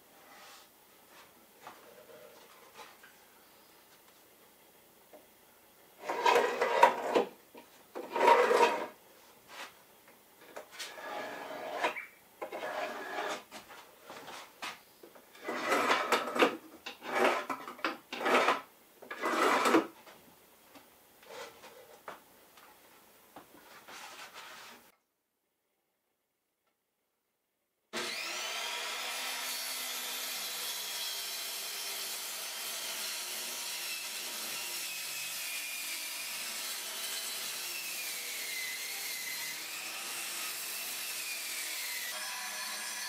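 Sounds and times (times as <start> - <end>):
wood scraping against wood: 6.0 - 7.3, 8.0 - 9.8, 10.5 - 14.8, 15.4 - 20.0, 21.2 - 22.0.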